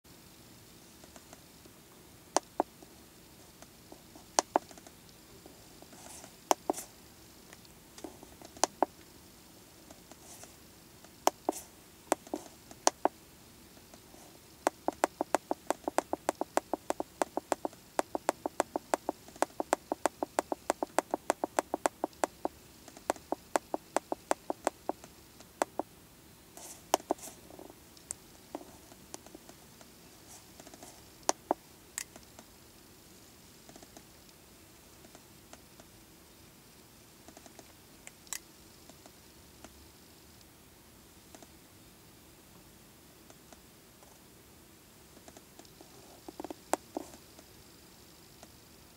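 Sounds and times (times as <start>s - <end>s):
keypad buttons clicking: 14.7s - 22.5s, 23.1s - 25.0s, 25.6s - 25.8s.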